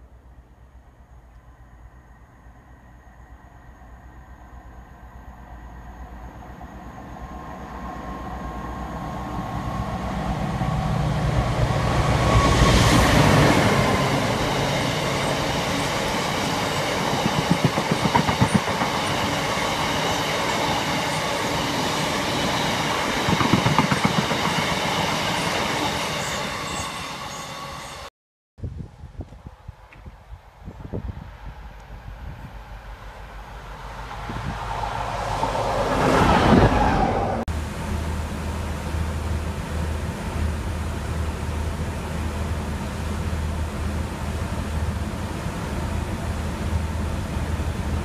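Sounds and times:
train wheels rumbling: 0.2s - 28.1s
locomotive engine passing: 4.1s - 28.1s, 31.3s - 48.0s
wheels clacking over rail joints: 13.2s - 25.4s.

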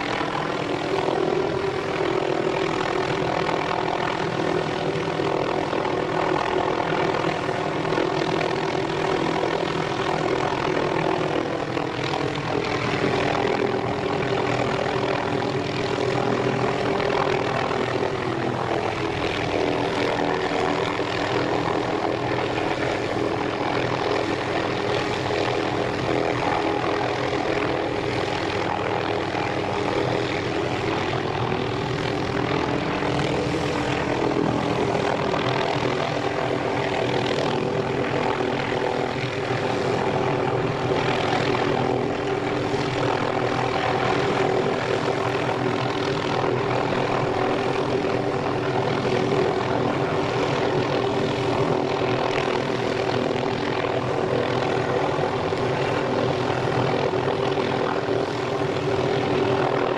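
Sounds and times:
helicopter hovering: 0.0s - 59.9s.

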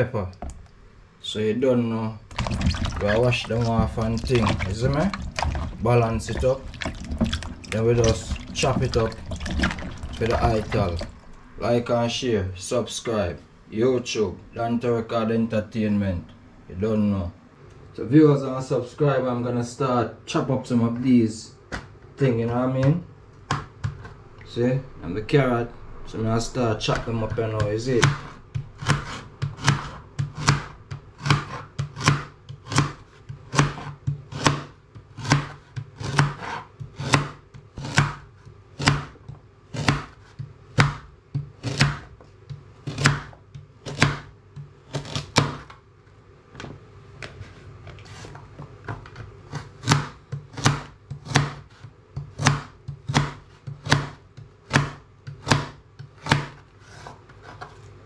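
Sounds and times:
knife chopping on plastic board: 22.5s - 24.1s, 26.9s - 45.8s, 48.1s - 57.7s.

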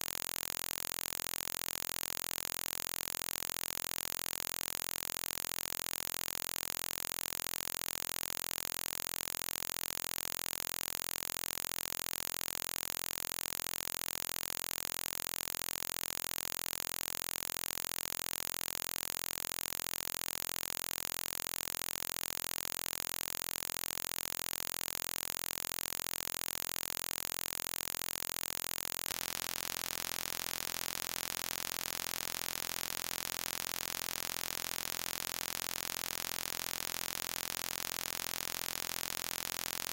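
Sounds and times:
static-like hiss: 29.1s - 39.9s.

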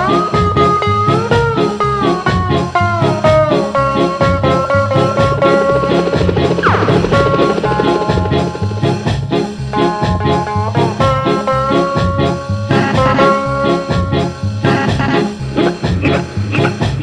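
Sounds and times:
upbeat music with bouncing bass: 0.0s - 17.0s.

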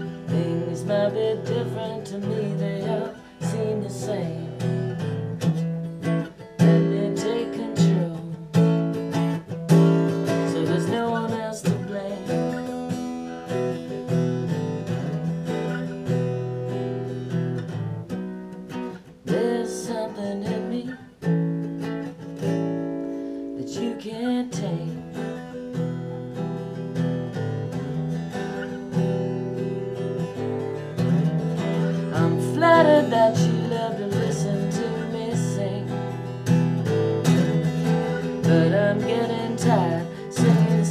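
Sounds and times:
acoustic guitar strumming: 0.0s - 40.9s.

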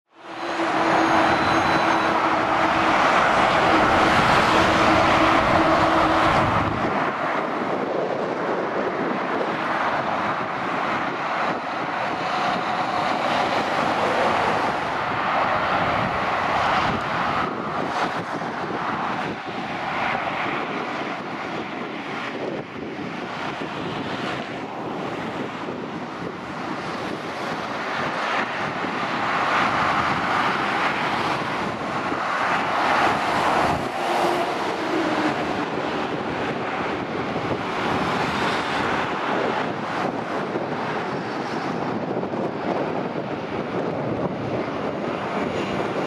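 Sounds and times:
traffic rushing past: 0.1s - 46.0s
droning note: 0.3s - 6.7s.

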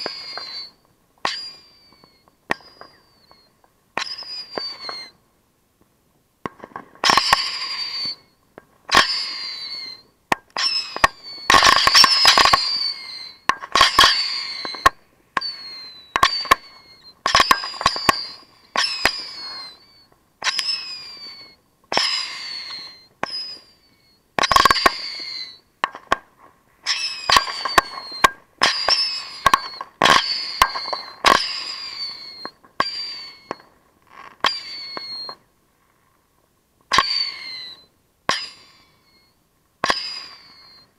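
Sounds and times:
fireworks cracking and whistling: 0.0s - 5.2s, 6.5s - 36.1s, 36.9s - 40.9s.

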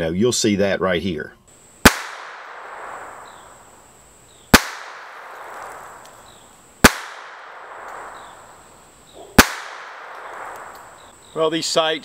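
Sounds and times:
pistol shots with echo: 1.8s - 3.6s, 4.5s - 6.0s, 6.8s - 8.6s, 9.4s - 11.1s.

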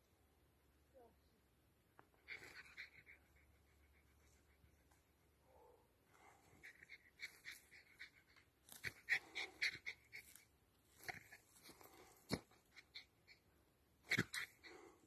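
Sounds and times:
dog panting: 6.4s - 10.4s.

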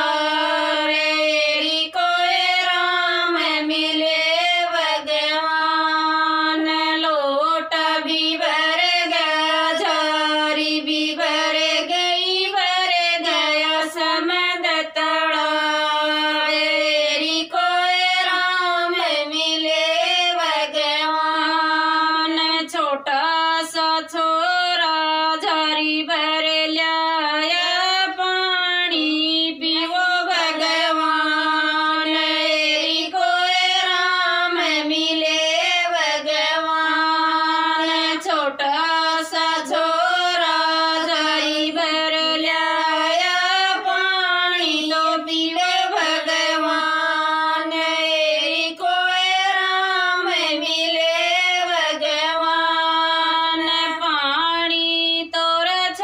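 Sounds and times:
women singing devotional song: 0.0s - 56.0s.

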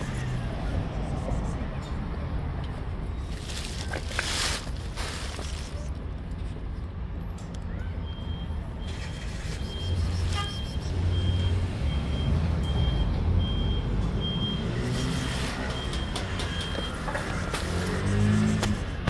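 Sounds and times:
low engine rumble: 0.0s - 7.6s
reversing alarm beeping: 8.1s - 17.3s.

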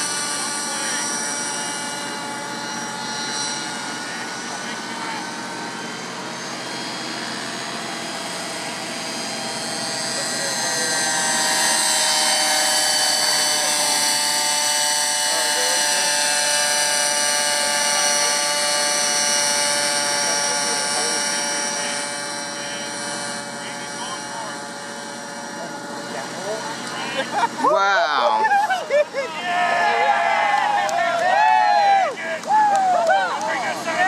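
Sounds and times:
model helicopter rotor whine: 0.0s - 34.0s.

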